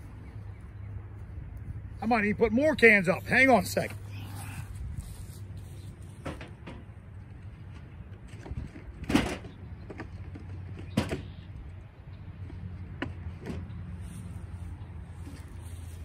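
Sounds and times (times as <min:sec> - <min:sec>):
wind rumble on microphone: 0:00.0 - 0:02.0, 0:04.4 - 0:14.1.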